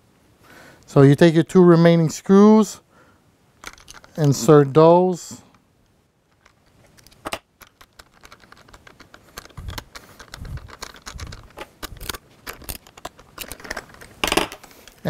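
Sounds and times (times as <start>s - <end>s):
metallic clicks of screws: 3.6s - 4.4s, 6.3s - 15.0s.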